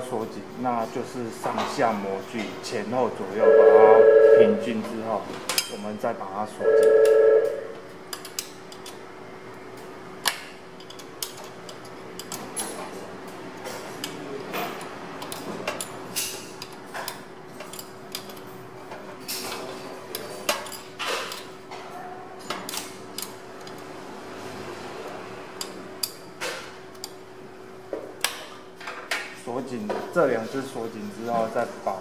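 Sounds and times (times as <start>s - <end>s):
steady machine hum: 3.0s - 5.4s, 6.0s - 12.4s.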